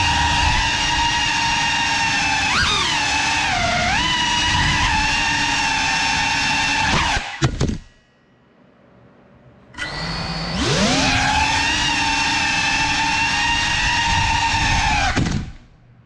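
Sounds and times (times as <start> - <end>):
drone motors whining: 0.0 - 7.5, 9.8 - 15.6.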